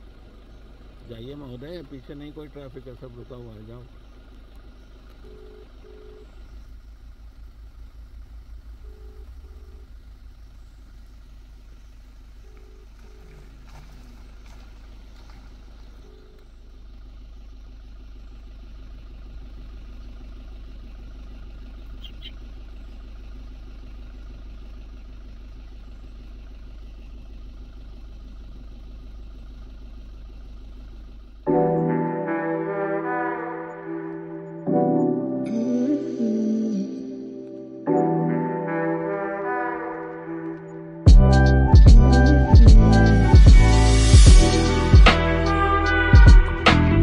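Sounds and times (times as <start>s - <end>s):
vehicle engine idling: 0.0s - 47.0s
short electronic beeps: 5.2s - 6.4s, 8.8s - 9.9s.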